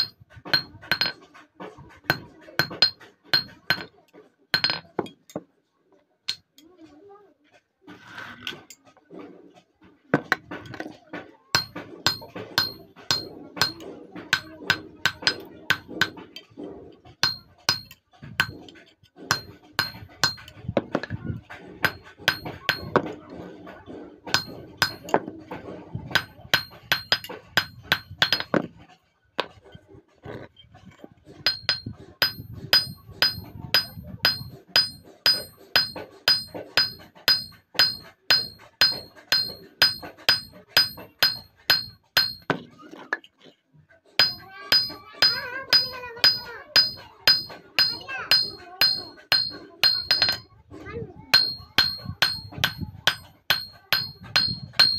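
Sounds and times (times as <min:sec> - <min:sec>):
hammer striking steel: 0:00.0 - 0:01.2, 0:02.1 - 0:03.9, 0:04.6 - 0:05.1, 0:11.6 - 0:16.2, 0:17.2 - 0:18.7, 0:19.3 - 0:21.1, 0:21.8 - 0:23.2, 0:24.3 - 0:25.3, 0:26.1 - 0:28.7, 0:31.4 - 0:42.7, 0:44.2 - 0:50.4, 0:51.3 - 0:54.9.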